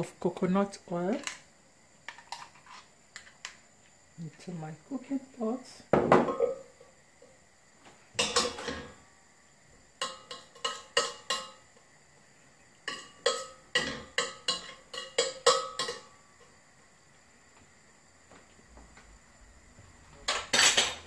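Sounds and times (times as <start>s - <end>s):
metal spoon tapping steel pot: 10.0s - 11.6s.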